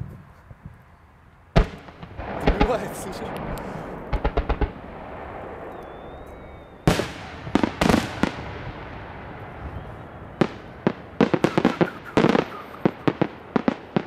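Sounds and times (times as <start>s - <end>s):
firework pops: 1.6s - 4.8s
firework shells bursting: 1.6s - 9.0s, 10.4s - 14.0s.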